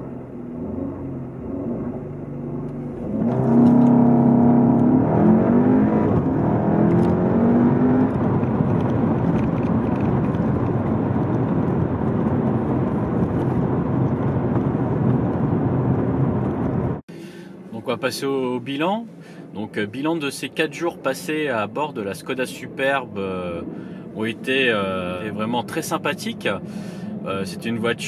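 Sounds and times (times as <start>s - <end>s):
road and tyre noise: 0.0s - 28.0s
car engine revving and accelerating: 0.4s - 17.0s.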